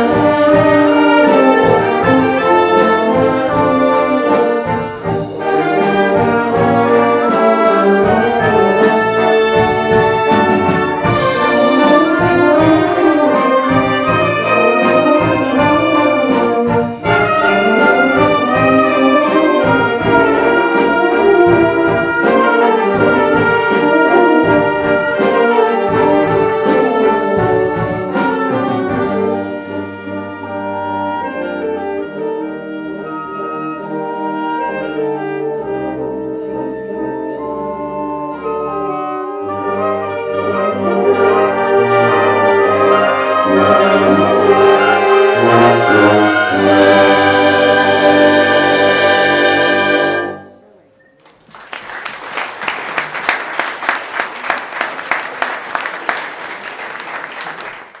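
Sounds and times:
concert band playing: 0.0s - 58.0s
audience applauding: 51.1s - 58.0s.

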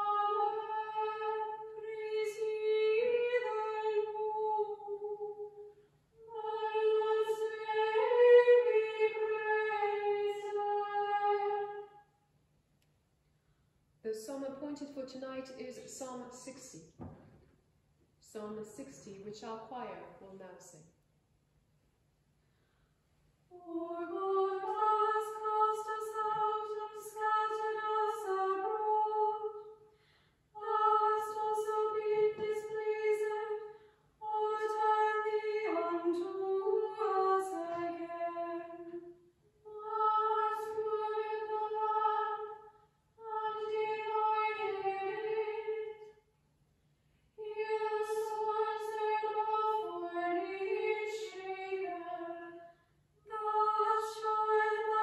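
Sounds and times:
women's choir chanting: 23.5s - 29.6s, 53.3s - 55.0s.

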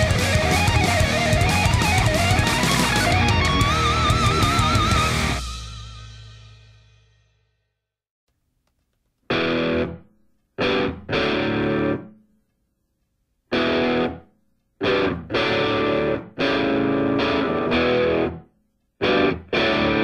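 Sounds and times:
distorted electric guitar stabs: 0.0s - 6.8s, 9.3s - 10.0s, 13.5s - 14.2s, 14.8s - 18.4s, 19.0s - 20.0s.

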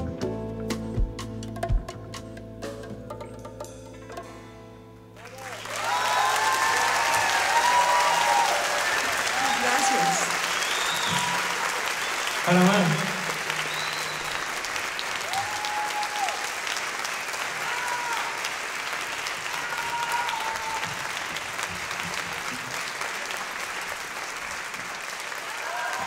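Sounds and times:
short cheers: 5.2s - 16.6s, 17.4s - 18.6s, 19.3s - 21.2s, 25.4s - 26.0s
audience applauding: 5.2s - 26.0s.

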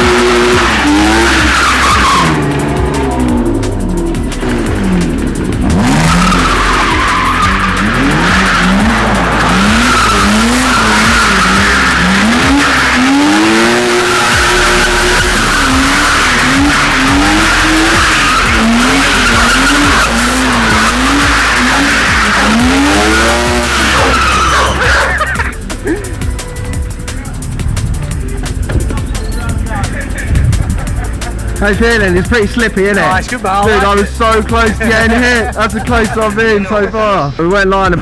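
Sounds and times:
tyres squealing: 0.0s - 3.3s, 4.5s - 30.3s
car engine revving: 0.0s - 37.0s.

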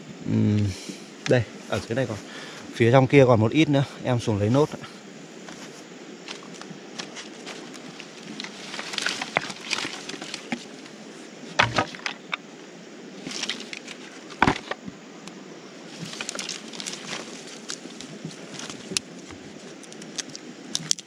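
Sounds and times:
dry branches clattering: 5.5s - 12.4s, 13.2s - 14.9s, 15.9s - 21.0s
wood knocks: 11.6s - 12.4s, 14.4s - 14.8s.

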